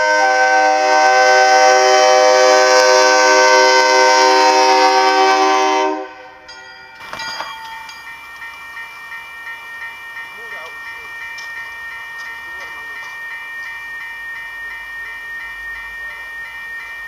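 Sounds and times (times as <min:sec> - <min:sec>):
locomotive air horn: 0:00.0 - 0:06.4
train noise: 0:00.0 - 0:17.0.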